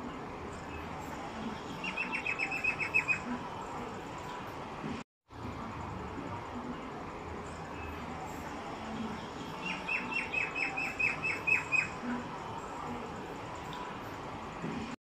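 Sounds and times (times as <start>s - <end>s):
bird chirping: 1.7s - 3.3s, 9.3s - 12.0s.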